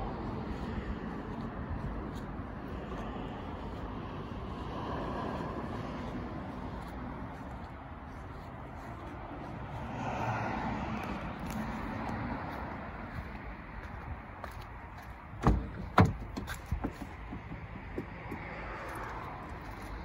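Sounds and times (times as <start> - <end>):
outdoor background noise: 0.0 - 20.0
sharp knocks: 15.4 - 18.6.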